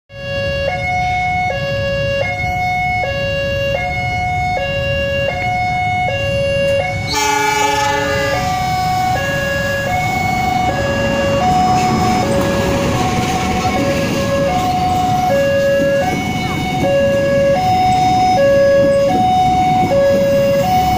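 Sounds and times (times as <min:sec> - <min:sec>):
two-tone electronic warning alarm: 0:00.1 - 0:20.9
train rumbling past: 0:05.4 - 0:20.9
train horn: 0:06.6 - 0:20.9.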